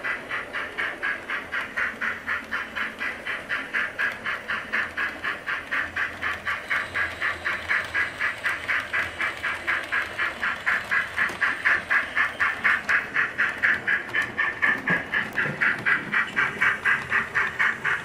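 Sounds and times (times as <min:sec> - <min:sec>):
model steam locomotive chuffing: 0:00.0 - 0:18.0.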